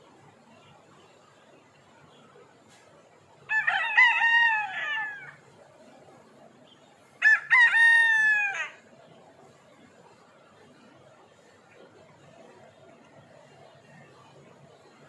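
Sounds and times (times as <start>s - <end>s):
rooster crowing: 3.5s - 5.4s, 7.2s - 8.8s.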